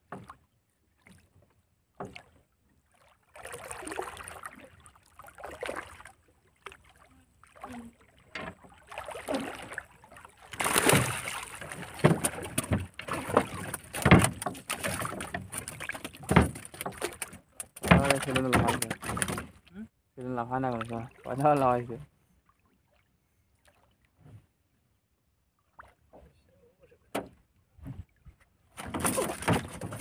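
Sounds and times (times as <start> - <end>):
water splashing: 2.0 - 19.8, 20.4 - 22.0, 28.7 - 30.0
knocks against wooden boat: 10.7 - 19.6, 27.1 - 28.0, 28.8 - 30.0.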